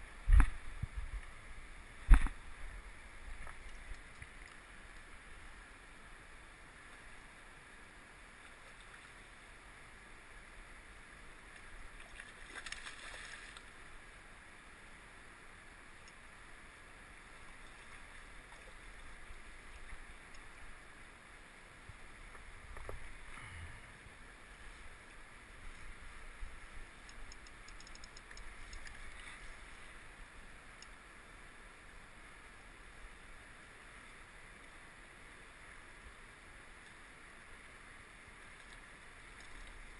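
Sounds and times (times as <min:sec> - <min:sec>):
river flowing against rocks: 0:00.0 - 0:39.9.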